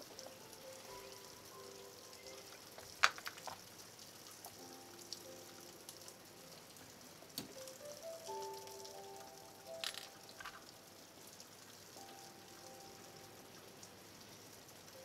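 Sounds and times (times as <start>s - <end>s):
soft music with held notes: 0.0s - 15.0s.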